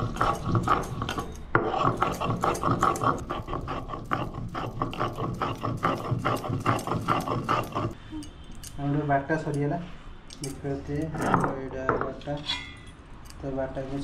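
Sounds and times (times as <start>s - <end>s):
stone grating seeds: 0.0s - 8.0s.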